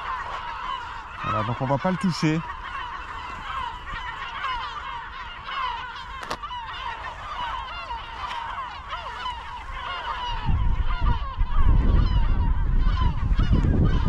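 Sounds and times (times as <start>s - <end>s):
gulls calling: 0.0s - 14.0s
wind rumble on microphone: 8.2s - 14.0s.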